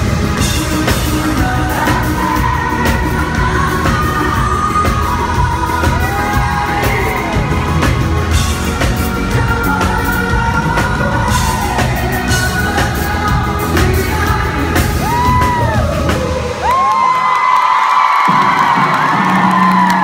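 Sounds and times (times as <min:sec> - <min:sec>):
man singing live: 0:00.0 - 0:17.0
pop-rock band playing: 0:00.0 - 0:17.5.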